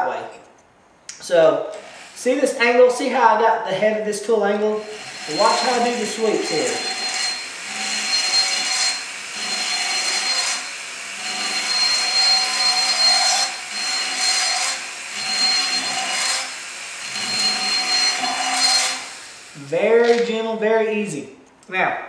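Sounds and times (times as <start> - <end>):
grinding tool high whine: 4.6 - 20.3
burr cutting metal: 4.6 - 20.4.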